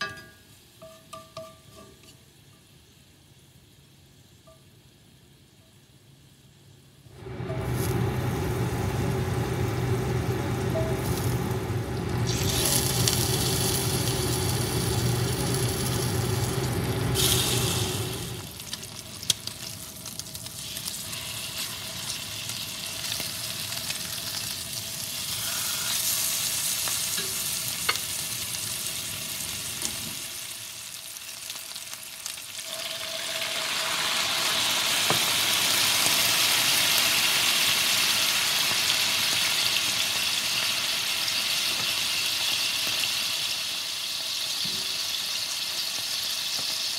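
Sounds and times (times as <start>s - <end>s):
liquid boiling in hot pan: 7.1s - 46.9s
low hum: 7.2s - 18.6s
steaks sizzling in a skillet: 12.3s - 46.9s.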